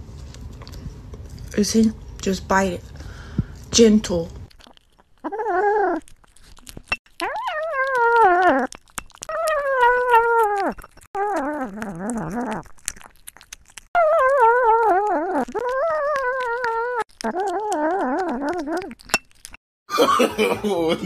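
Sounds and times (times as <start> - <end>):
wet chewing and licking: 4.4 - 19.6
kitten meowing: 9.3 - 12.6.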